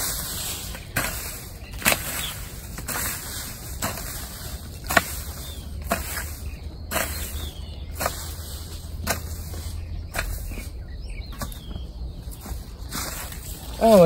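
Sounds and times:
hoe chopping into soil: 0.1s - 10.7s.

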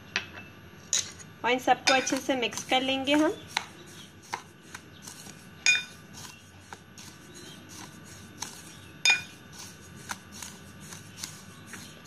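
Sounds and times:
spoon scraping spices in bowl: 1.8s - 12.0s
spoon clinking against bowl: 1.9s - 2.2s, 5.6s - 5.9s, 9.0s - 9.3s.

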